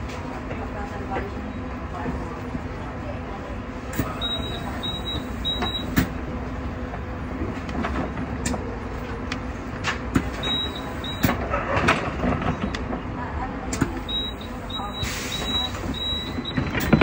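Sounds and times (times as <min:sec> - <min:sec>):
tram hum and rumble: 0:00.0 - 0:17.0
short high beeps: 0:04.1 - 0:06.0, 0:14.0 - 0:17.0.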